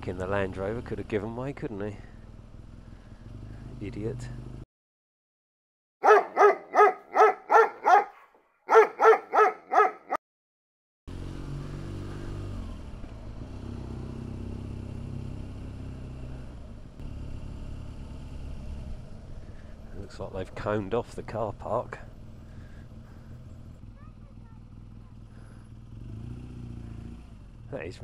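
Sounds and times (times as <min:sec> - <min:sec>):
road and wind noise: 0:00.0 - 0:04.6, 0:11.1 - 0:28.0
motorcycle engine at low revs: 0:00.0 - 0:04.7, 0:11.1 - 0:28.0
dog barking: 0:06.0 - 0:10.2.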